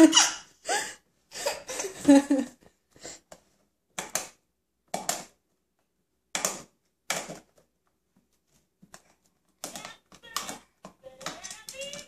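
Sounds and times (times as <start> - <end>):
hands slapping plastic toy table: 3.3 - 5.4, 6.2 - 12.0.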